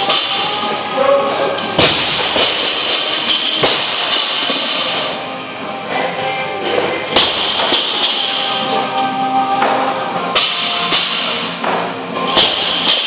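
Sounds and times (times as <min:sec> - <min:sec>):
music playing: 0:00.0 - 0:13.0.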